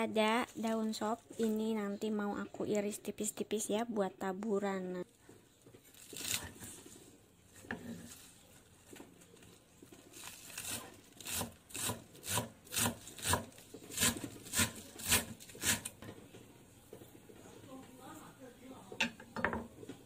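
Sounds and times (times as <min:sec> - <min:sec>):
knife chopping celery on wooden board: 0:10.6 - 0:15.9.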